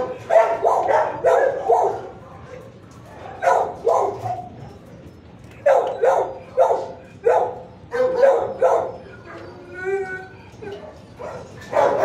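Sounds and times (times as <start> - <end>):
dog barking: 0.0 - 2.2, 3.4 - 4.5, 5.6 - 9.0, 11.2 - 12.0.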